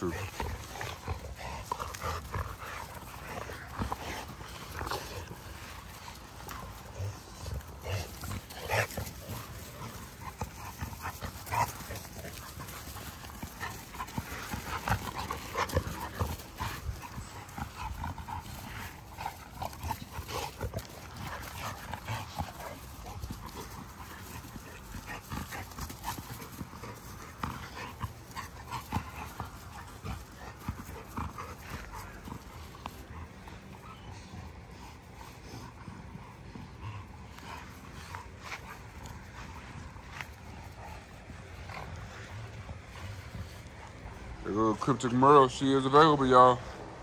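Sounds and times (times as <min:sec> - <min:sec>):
dogs scuffling: 0:00.0 - 0:35.1
dog noises: 0:00.0 - 0:47.0.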